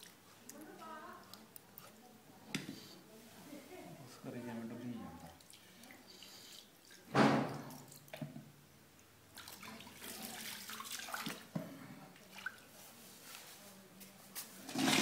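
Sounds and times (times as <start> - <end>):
water pouring and splashing: 9.3 - 11.5.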